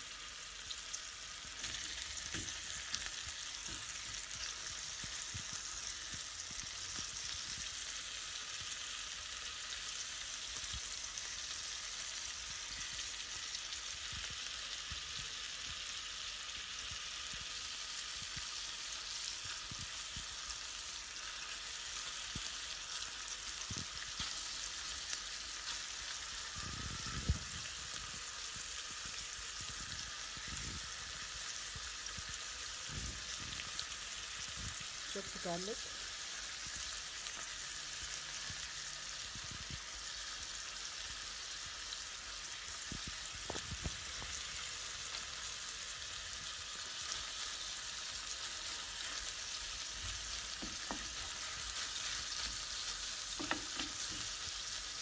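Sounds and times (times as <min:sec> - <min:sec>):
chicken sizzling in oil: 0:00.0 - 0:55.0
soft knocks on pan: 0:50.6 - 0:51.2, 0:53.4 - 0:54.2.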